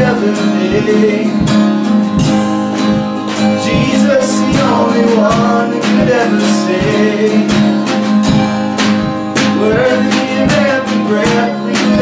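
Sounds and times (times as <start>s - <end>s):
person singing melody: 0.0s - 1.7s, 3.3s - 7.9s, 8.9s - 12.0s
acoustic guitar strumming: 0.0s - 12.0s.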